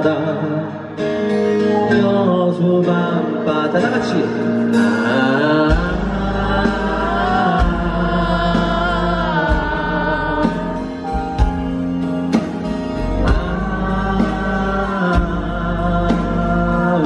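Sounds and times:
man singing: 0.0 - 1.0, 1.8 - 11.2, 12.9 - 17.0
acoustic guitar: 0.0 - 17.0
bass: 3.8 - 17.0
audience singing along: 4.6 - 17.0.

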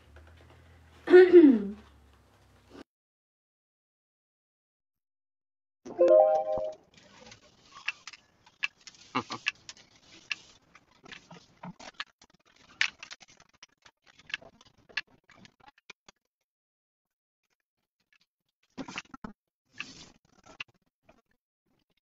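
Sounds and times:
small clicks and crackles: 6.9 - 16.3, 17.4 - 22.0.

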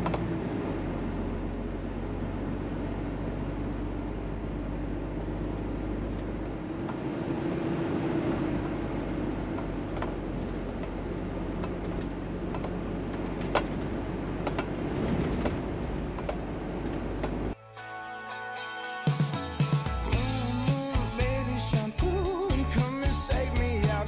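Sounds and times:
diesel engine hum: 0.0 - 17.6, 19.8 - 24.0
road noise: 0.0 - 17.6
cab clicks and rattles: 9.5 - 17.5.

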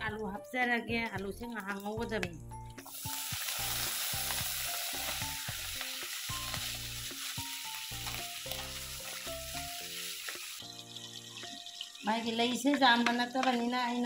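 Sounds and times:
background music: 0.0 - 14.0
potatoes sizzling in a pan: 2.8 - 14.0.

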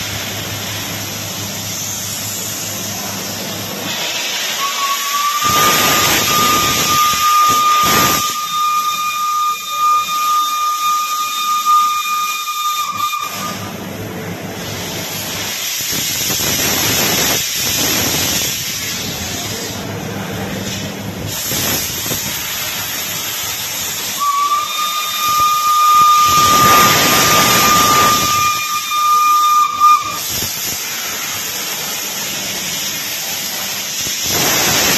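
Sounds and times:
steam hissing: 0.0 - 34.9
steam locomotive whistle: 3.9 - 13.8, 20.7 - 31.0.

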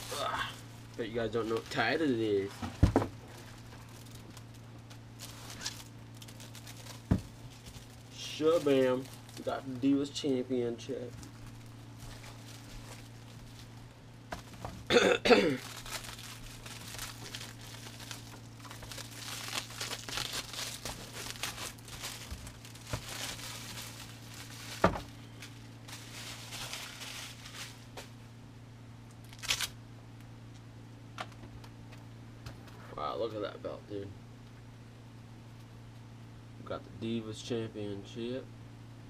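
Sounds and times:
plastic wrapping crinkling and tearing: 0.0 - 2.5, 3.2 - 10.0, 10.8 - 13.8, 15.4 - 28.0, 29.2 - 29.8.

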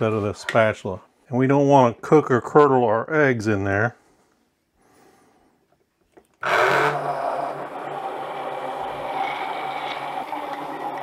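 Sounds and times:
immersion blender running: 6.4 - 11.0.

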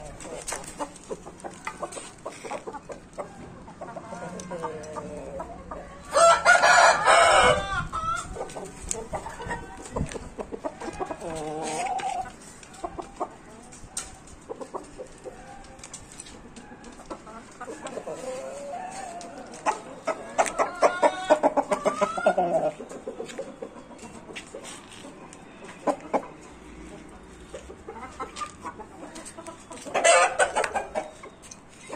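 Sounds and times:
rooster clucking: 0.0 - 13.7, 16.3 - 31.9
rooster crowing: 6.1 - 7.9.

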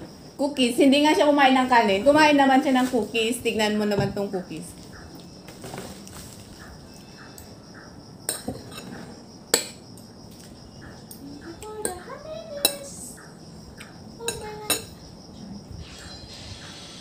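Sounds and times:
metal spoon clinking on a plate: 8.3 - 9.0, 14.2 - 15.0.

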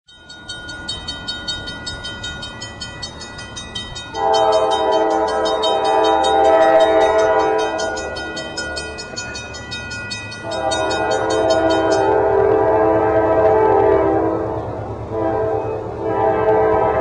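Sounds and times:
crossing bell dinging: 0.1 - 12.5
locomotive air horn: 4.1 - 9.0, 10.4 - 17.0.

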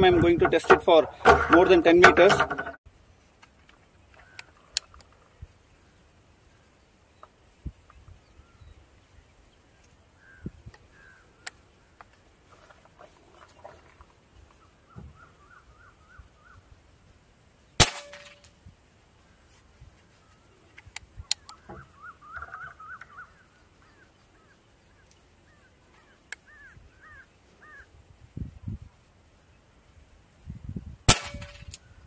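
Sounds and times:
faint bird calls: 3.9 - 16.8, 19.2 - 28.0
air rifle shot: 31.1 - 31.8.

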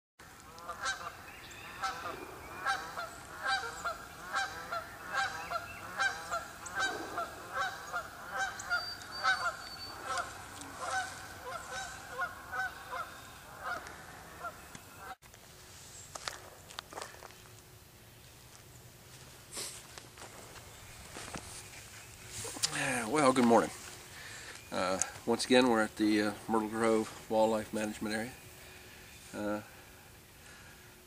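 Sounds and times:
geese honking: 0.3 - 15.2.

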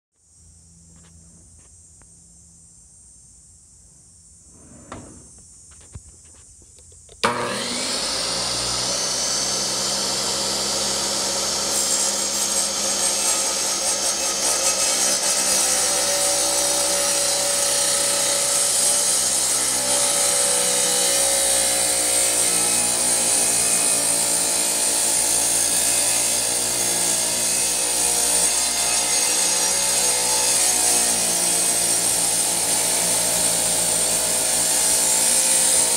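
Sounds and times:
wet tile saw cutting tiles: 7.2 - 35.9.

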